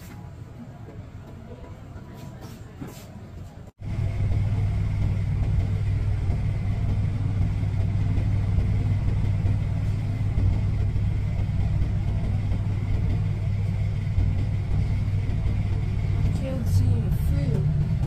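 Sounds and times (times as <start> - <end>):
bus engine drone: 0.0 - 18.0
quiet street sound: 0.0 - 18.0
thin steady whine: 3.8 - 18.0.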